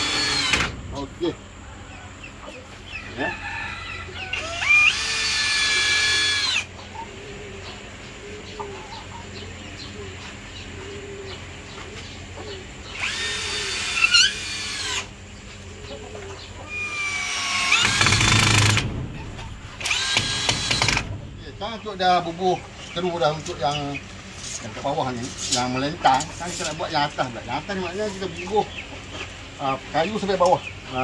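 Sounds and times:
electric drill whining: 0.0 - 0.7, 4.4 - 6.7, 13.0 - 15.1, 16.8 - 18.8, 19.8 - 21.1.

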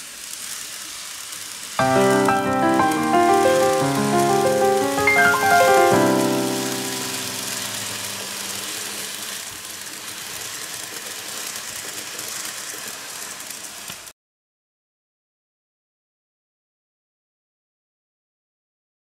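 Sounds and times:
model train wheels rattling: 0.0 - 1.8, 8.0 - 14.1
background music: 1.8 - 8.6.

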